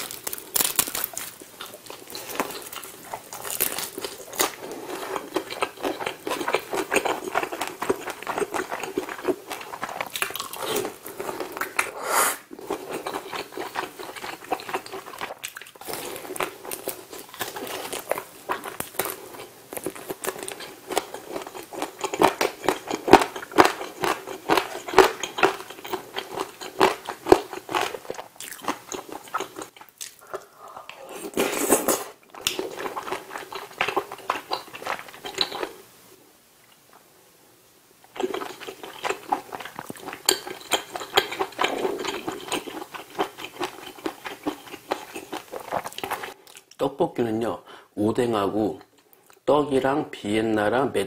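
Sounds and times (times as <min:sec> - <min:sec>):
loud slurp: 0:11.8 - 0:12.6
chewing and wet mouth clicks: 0:38.1 - 0:46.8.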